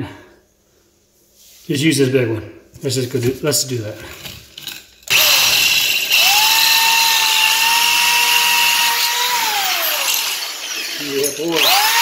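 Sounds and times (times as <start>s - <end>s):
power drill boring into wall: 5.1s - 12.0s.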